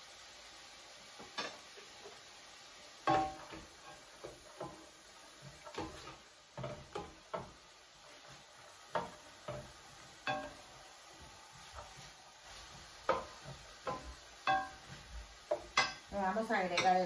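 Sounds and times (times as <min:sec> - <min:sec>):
vegetables sizzling in oil: 0:00.0 - 0:17.0
spoon clinking against metal pan: 0:13.8 - 0:14.8, 0:16.7 - 0:17.0.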